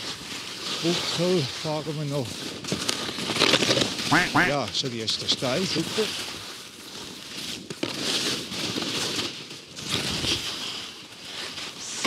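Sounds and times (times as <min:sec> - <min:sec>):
skis scraping over hard snow: 0:00.0 - 0:12.0.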